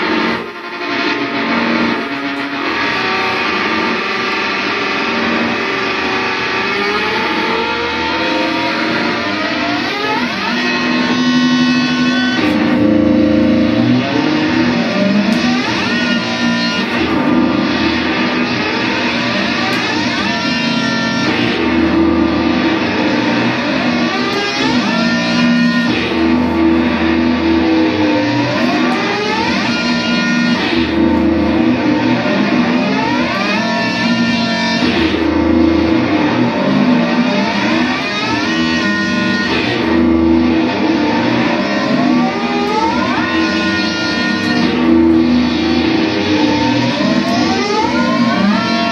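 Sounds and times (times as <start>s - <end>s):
electric guitar sustained tones: 0.0s - 48.9s.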